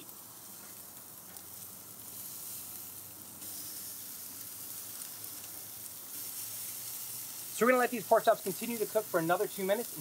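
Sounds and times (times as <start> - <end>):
meat sizzling on grill: 0.0 - 10.0.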